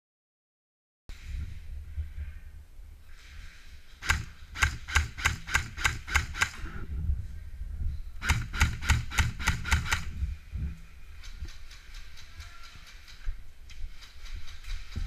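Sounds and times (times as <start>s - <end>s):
airsoft rifle shots: 4.0s - 6.7s, 8.2s - 10.1s.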